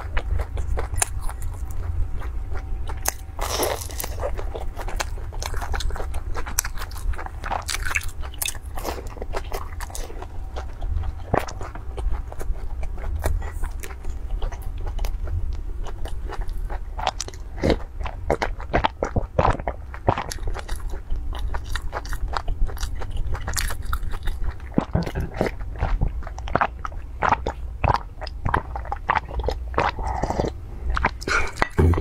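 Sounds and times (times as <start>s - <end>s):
crunchy bites and chewing: 0.0s - 32.0s
steady low hum: 0.0s - 32.0s.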